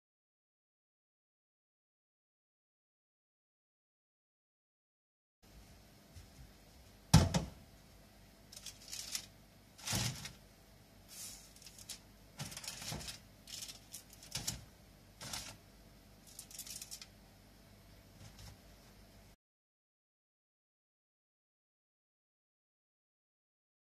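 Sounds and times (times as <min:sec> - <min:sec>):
metal tray knocking on sink: 0:07.2 - 0:07.6
paper rustling: 0:08.6 - 0:10.4, 0:11.1 - 0:15.6, 0:16.3 - 0:17.1.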